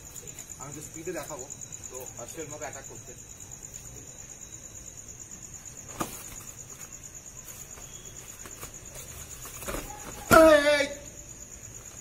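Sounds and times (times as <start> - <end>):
crickets chirping: 0.0 - 12.0
faint scuffs: 5.8 - 10.5.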